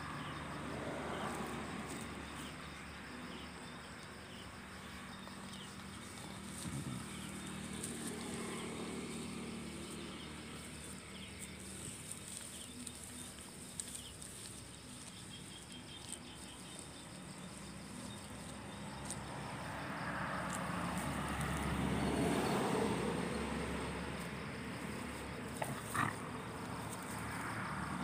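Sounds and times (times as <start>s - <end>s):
night insects trilling: 0.0s - 28.0s
dogs scuffling on grass: 5.4s - 19.5s, 24.1s - 28.0s.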